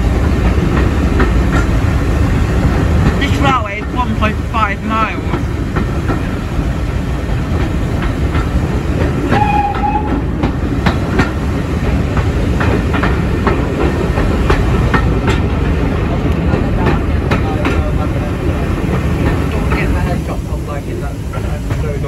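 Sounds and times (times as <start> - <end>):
train rumbling on track: 0.0 - 22.0
high-pitched wheel squeal: 9.3 - 10.2.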